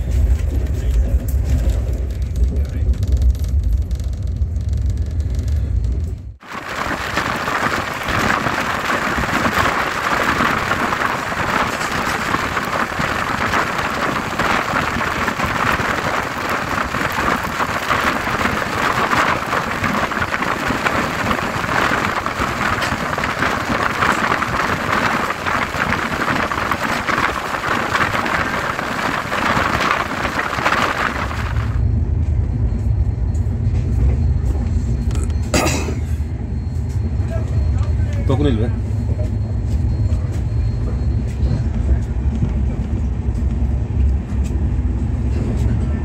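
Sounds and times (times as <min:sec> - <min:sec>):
train coaches rumbling on track: 0:00.0 - 0:46.0
rain hissing: 0:06.4 - 0:31.8
rushing air: 0:06.4 - 0:31.9.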